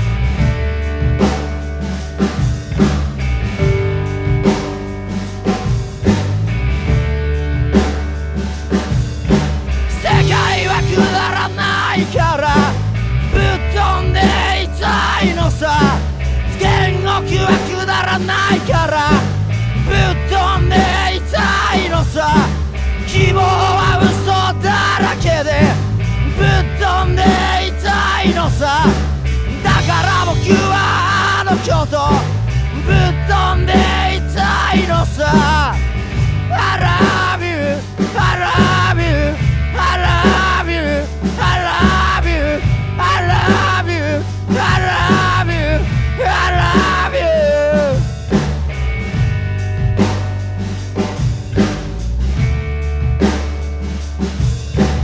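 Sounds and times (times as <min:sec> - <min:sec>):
driving bass line: 0:00.0 - 0:55.0
drum kit beat: 0:00.0 - 0:55.0
electric guitar: 0:00.0 - 0:55.0
rock song: 0:00.0 - 0:55.0
man singing: 0:09.9 - 0:48.2.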